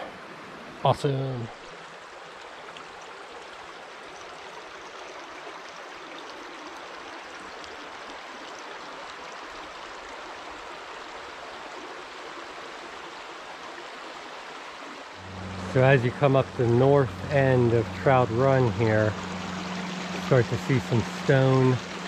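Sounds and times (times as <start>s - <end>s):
stream running over stones: 0.0s - 22.0s.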